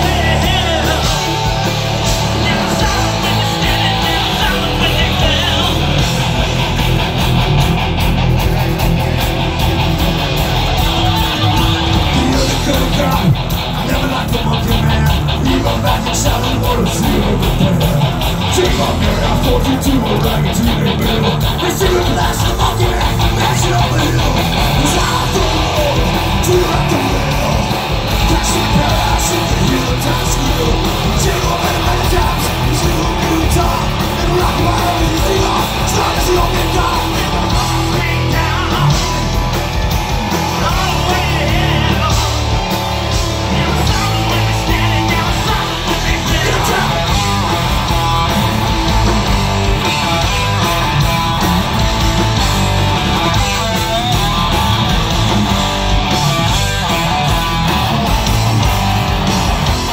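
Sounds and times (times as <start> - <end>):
person singing: 0.0 - 6.6, 10.7 - 39.4, 40.4 - 48.5
distorted electric guitars: 0.0 - 59.9
heavy rock band playing: 0.0 - 59.9.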